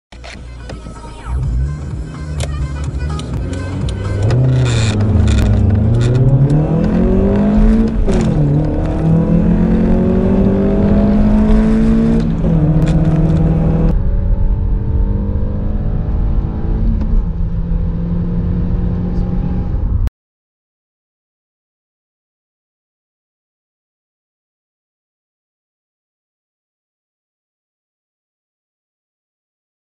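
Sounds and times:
car engine accelerating: 0.4s - 20.1s.

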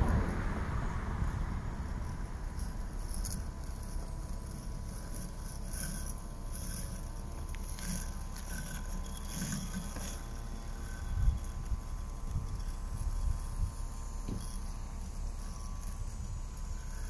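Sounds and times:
wind on microphone: 0.0s - 3.6s, 10.8s - 13.9s
robotic lawn mower motor hum: 0.0s - 17.0s.

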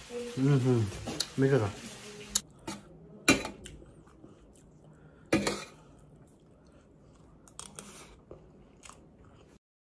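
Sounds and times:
chewing: 3.6s - 9.6s.

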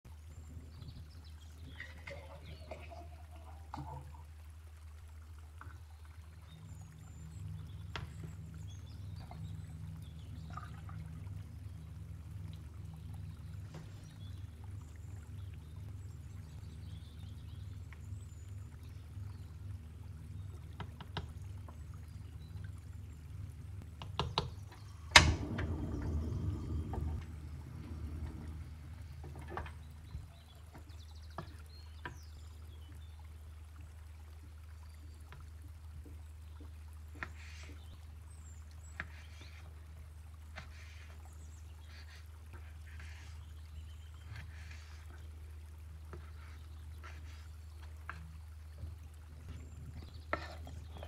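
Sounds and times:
low steady hum: 0.0s - 51.0s
liquid being poured: 1.6s - 31.8s
gas burner hissing: 25.0s - 29.4s.

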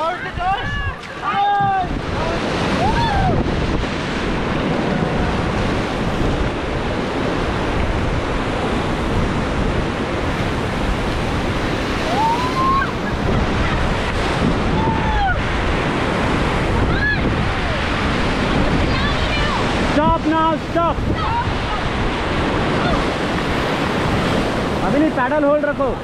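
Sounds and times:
river rapids rushing: 0.0s - 26.0s
wind buffeting microphone: 0.0s - 26.0s
voices calling: 11.9s - 15.6s.

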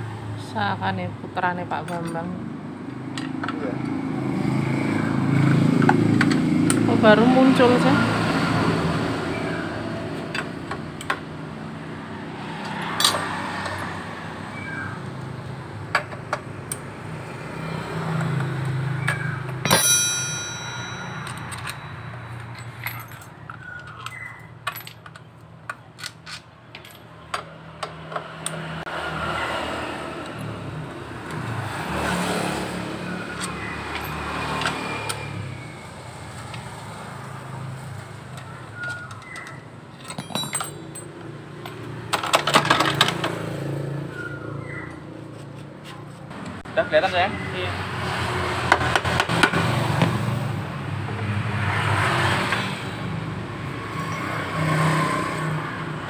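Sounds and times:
vehicle engine humming: 0.0s - 54.5s
sharp ringing metal clang: 19.6s - 22.4s.

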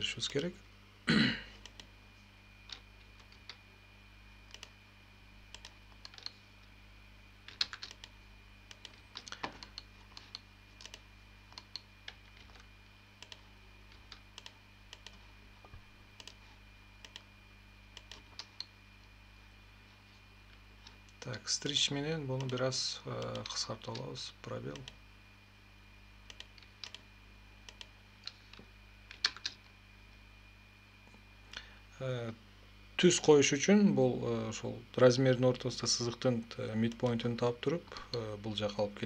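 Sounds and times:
faint steady hum: 0.0s - 39.0s
computer mouse clicks: 1.6s - 1.9s, 4.5s - 4.8s, 5.5s - 6.4s, 7.5s - 15.2s, 16.2s - 16.4s, 17.0s - 17.3s, 18.0s - 18.7s, 26.3s - 27.0s, 27.7s - 29.6s
keyboard keystrokes: 7.5s - 8.1s.

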